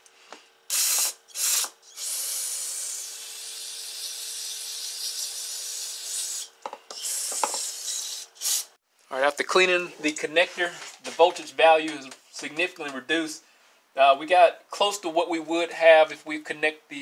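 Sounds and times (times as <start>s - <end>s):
aerosol spray hissing: 0.7s - 1.7s, 7.0s - 8.7s.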